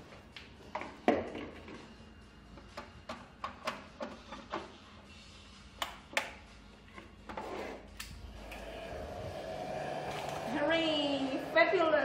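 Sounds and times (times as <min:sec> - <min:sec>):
cord reel clicking: 0:10.0 - 0:11.2.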